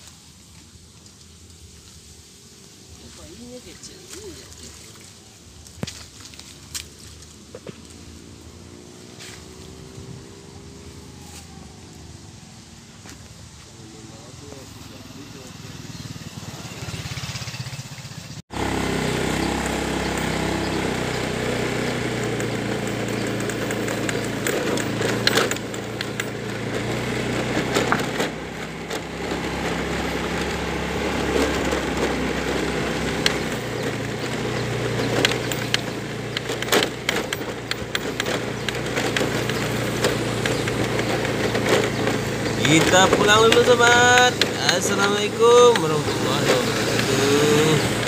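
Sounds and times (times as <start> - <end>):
wind and road noise: 0.0 - 48.0
motorcycle engine running: 0.4 - 48.0
sharp knocks from bumps: 19.7 - 48.0.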